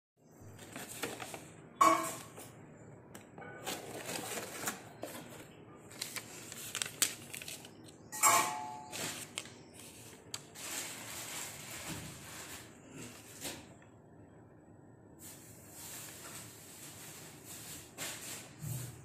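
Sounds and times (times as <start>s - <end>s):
paper rustling and crinkling: 0.5s - 1.6s, 3.5s - 8.1s, 8.8s - 13.7s.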